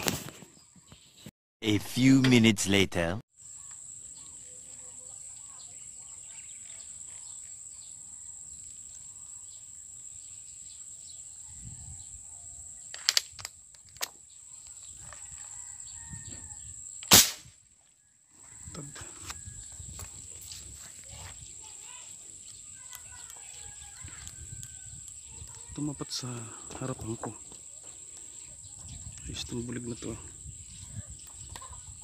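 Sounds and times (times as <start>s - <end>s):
air gun shot: 17.0s - 17.6s.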